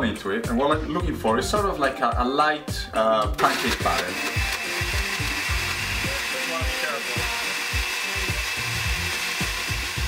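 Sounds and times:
blender motor running: 0:03.4 - 0:10.0.

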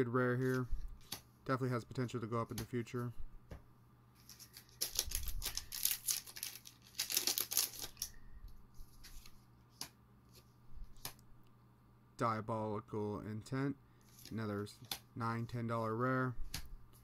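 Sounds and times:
cards clicking as leafed through: 0:04.2 - 0:08.2
foil wrapper tearing and crinkling: 0:04.3 - 0:08.2.

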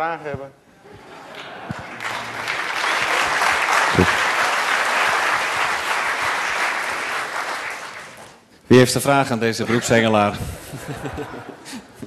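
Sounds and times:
audience applauding: 0:01.3 - 0:08.5.

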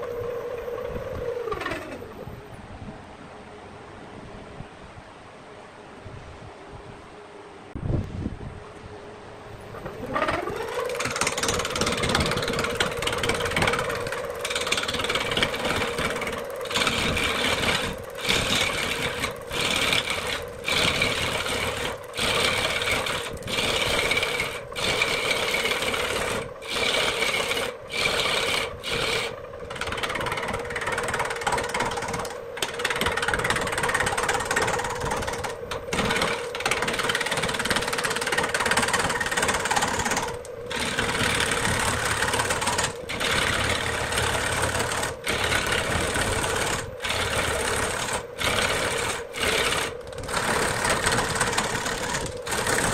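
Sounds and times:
wood lathe motor hum: 0:00.0 - 0:02.4, 0:09.7 - 0:52.9
gouge scraping wood: 0:10.9 - 0:52.9.

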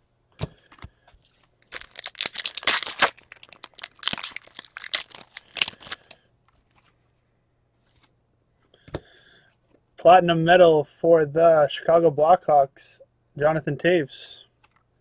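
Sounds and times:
foil wrapper tearing and crinkling: 0:01.6 - 0:06.2.

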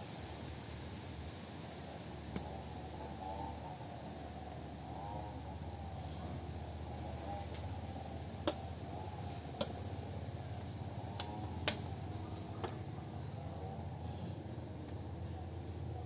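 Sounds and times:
steady low hum: 0:00.0 - 0:16.0
light sharp clicks: 0:02.3 - 0:02.6.

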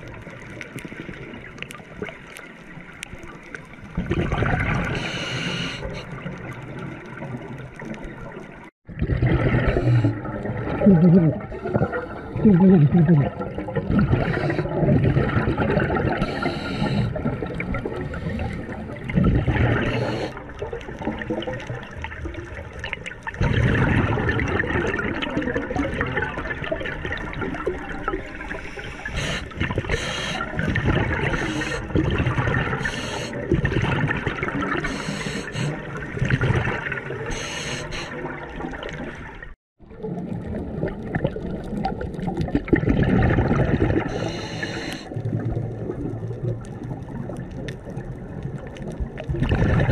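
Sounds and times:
breathing through regulator: 0:04.9 - 0:06.2, 0:09.5 - 0:10.3, 0:11.4 - 0:12.6, 0:14.0 - 0:14.8, 0:16.1 - 0:17.3, 0:18.0 - 0:18.8, 0:19.7 - 0:20.4, 0:28.4 - 0:32.0, 0:32.7 - 0:33.5, 0:34.8 - 0:35.9, 0:37.3 - 0:38.2, 0:44.0 - 0:45.1
regulator exhalation bubbles: 0:08.9 - 0:20.4, 0:42.4 - 0:45.1.

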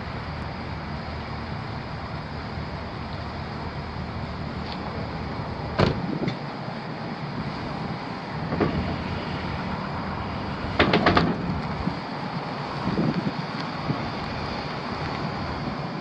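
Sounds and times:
truck engine idling: 0:00.0 - 0:16.0
sharp clicks and knocks: 0:10.8 - 0:11.8.

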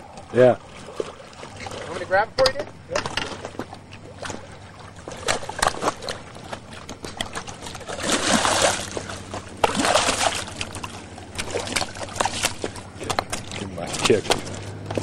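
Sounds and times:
fish splashing in water: 0:00.0 - 0:02.2, 0:03.0 - 0:15.0.

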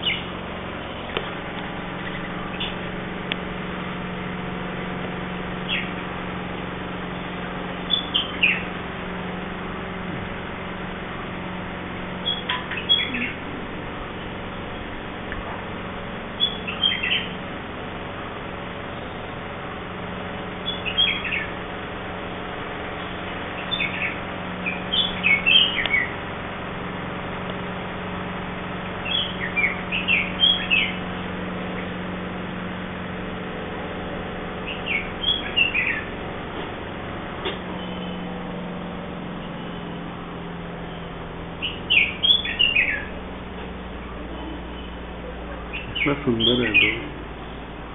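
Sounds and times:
bird chirping: 0:00.0 - 0:00.3, 0:02.0 - 0:02.9, 0:05.6 - 0:06.0, 0:07.2 - 0:08.7, 0:12.2 - 0:13.5, 0:16.4 - 0:17.4, 0:20.6 - 0:21.6, 0:23.5 - 0:26.2, 0:29.0 - 0:31.0, 0:34.6 - 0:36.1, 0:40.9 - 0:43.2, 0:44.5 - 0:47.2.

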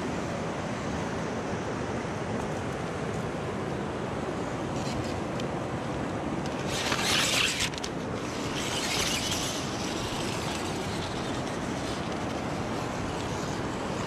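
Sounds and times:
toy car motor whirring: 0:06.5 - 0:14.0.

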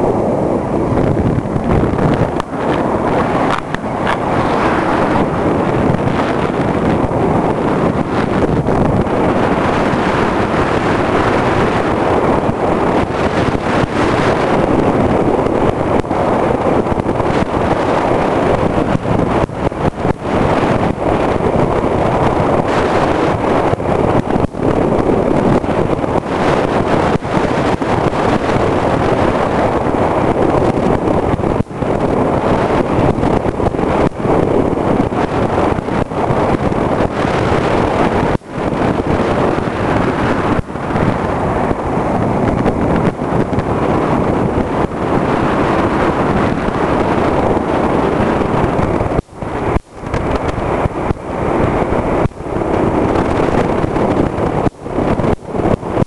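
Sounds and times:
scooter engine running: 0:00.0 - 0:13.3
wind rushing on microphone: 0:00.0 - 0:56.0.

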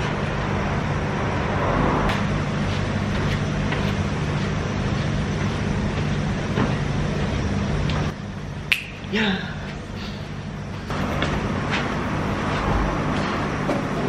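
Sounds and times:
even rushing noise: 0:00.0 - 0:03.1
low mechanical hum: 0:00.0 - 0:14.0.

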